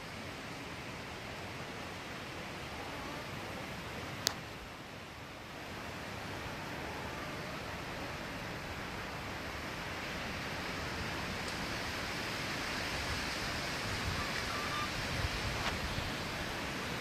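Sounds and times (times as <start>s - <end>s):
wind blowing through trees: 0.0s - 17.0s
wind bumps on microphone: 12.8s - 16.8s.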